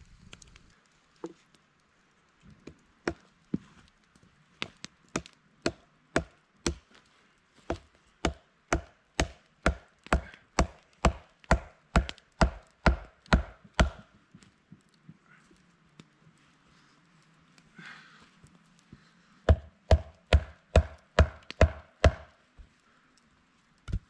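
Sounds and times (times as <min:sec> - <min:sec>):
axe chopping wood: 0:04.6 - 0:06.8, 0:07.7 - 0:14.1, 0:19.5 - 0:22.3.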